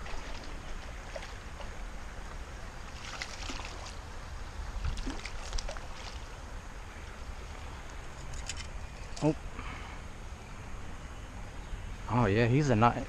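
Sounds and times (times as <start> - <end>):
light water splashes: 0.0 - 9.4.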